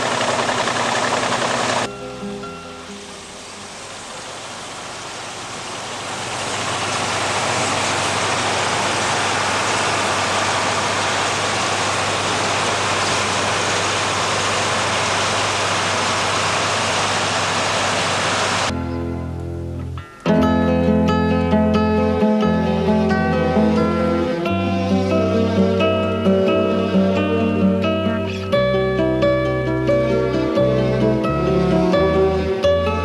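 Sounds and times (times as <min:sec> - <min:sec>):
combine harvester running: 0:00.0 - 0:18.7.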